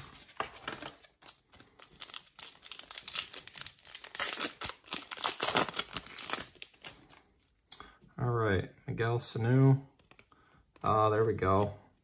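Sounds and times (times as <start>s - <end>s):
foil wrapper tearing and crinkling: 0.6s - 6.9s.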